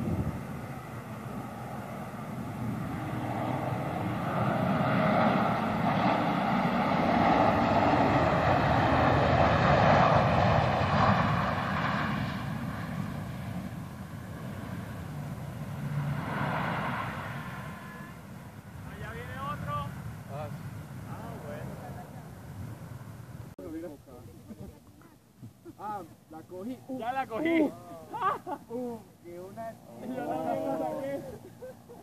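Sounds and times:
jet airliner taking off: 0:00.0 - 0:23.8.

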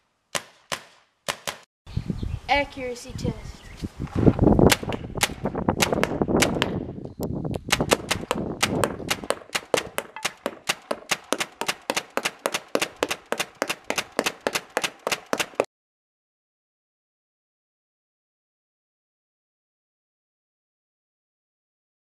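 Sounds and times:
paintball gun firing: 0:00.4 - 0:01.7, 0:04.7 - 0:06.8, 0:07.6 - 0:15.7.

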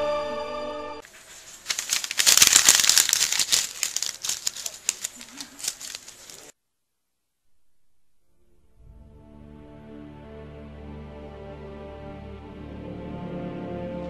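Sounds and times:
paper being crumpled: 0:01.0 - 0:06.5.

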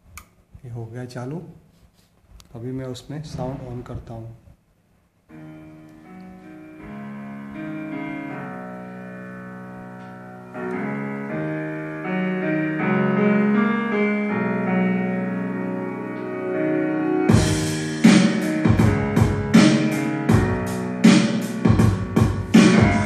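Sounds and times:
piano music through speakers: 0:05.2 - 0:23.0.

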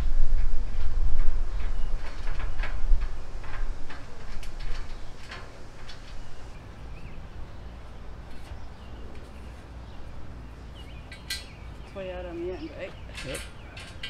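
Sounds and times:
steady low rumble: 0:00.0 - 0:14.0
metal rails clicking and knocking: 0:11.0 - 0:11.6, 0:12.8 - 0:14.0.

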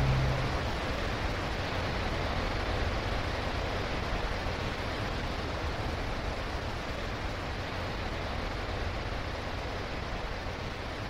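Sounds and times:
held low chord: 0:00.0 - 0:00.8
steady wash of noise: 0:00.0 - 0:02.1.

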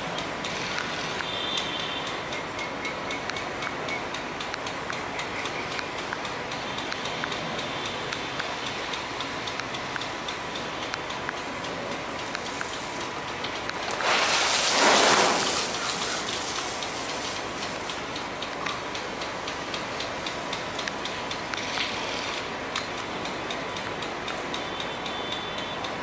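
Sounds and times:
faint light ticks: 0:00.0 - 0:14.0, 0:15.8 - 0:26.0
sprinkler spray hissing: 0:00.0 - 0:26.0.

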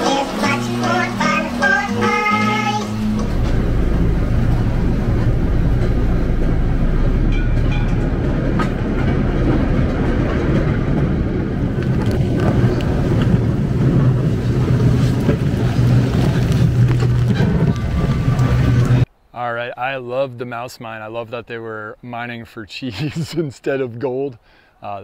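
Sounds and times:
ride cars rumbling on track: 0:00.0 - 0:19.1.

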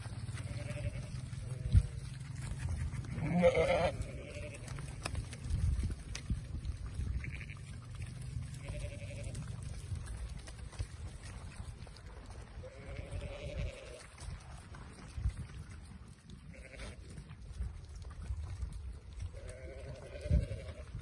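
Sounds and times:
sheep bleating: 0:00.3 - 0:01.8, 0:03.0 - 0:04.9, 0:07.1 - 0:09.5, 0:12.6 - 0:14.1, 0:16.5 - 0:17.0, 0:19.3 - 0:21.0.

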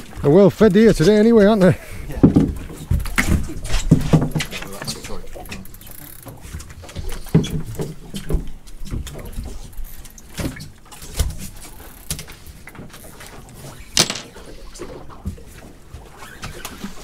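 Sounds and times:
fishing tackle knocking and clattering: 0:02.2 - 0:05.7, 0:14.0 - 0:14.5.

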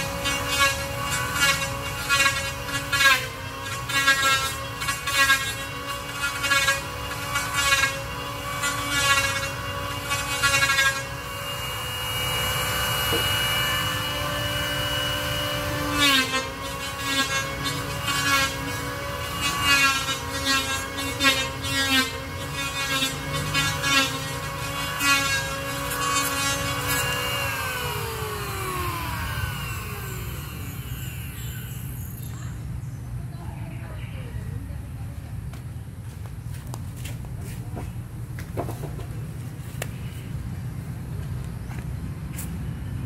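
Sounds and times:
power tool cutting wood: 0:00.0 - 0:32.4.

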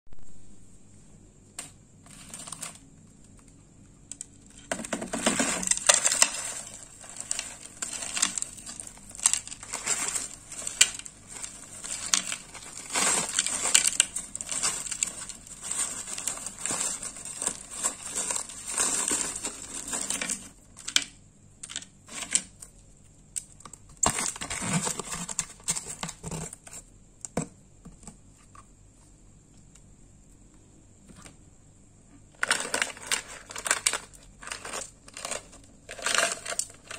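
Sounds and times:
crushed ice crunching by hand: 0:05.0 - 0:20.6.

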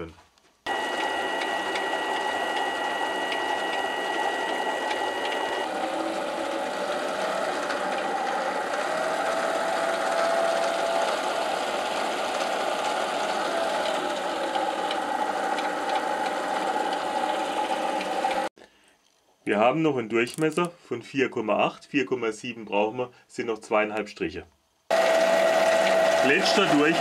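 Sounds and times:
high whine: 0:00.7 - 0:09.2
lathe running: 0:00.7 - 0:18.5, 0:24.9 - 0:27.0.

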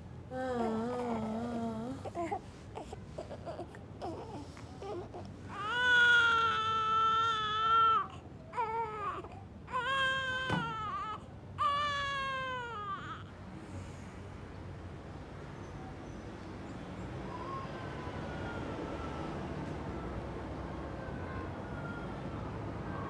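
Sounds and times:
newborn baby crying: 0:00.3 - 0:13.3.

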